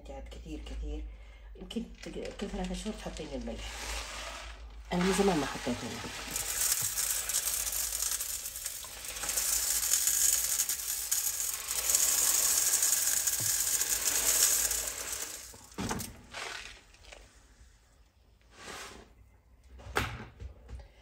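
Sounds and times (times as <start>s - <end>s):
salt grains pouring through funnel: 3.6s - 16.8s.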